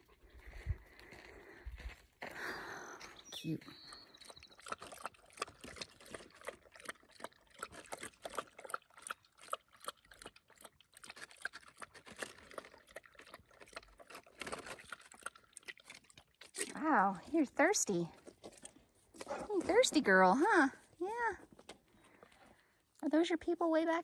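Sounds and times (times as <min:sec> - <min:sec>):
dog lapping water: 0:03.9 - 0:16.8.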